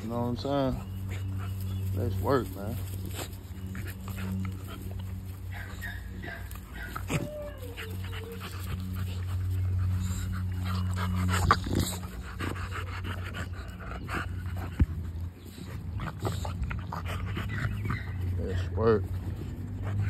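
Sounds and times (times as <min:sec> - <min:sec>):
low hum: 0:00.0 - 0:18.4
dogs panting: 0:00.0 - 0:20.0
dog whining: 0:05.5 - 0:12.2.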